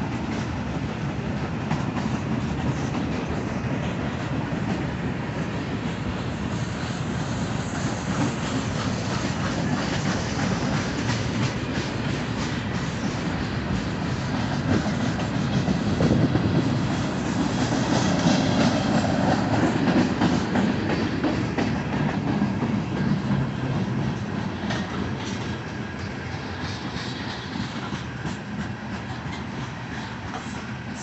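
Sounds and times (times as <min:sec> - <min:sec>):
train wheels rumbling on rails: 0:00.0 - 0:31.0
wheels clicking over rail joints: 0:07.2 - 0:31.0.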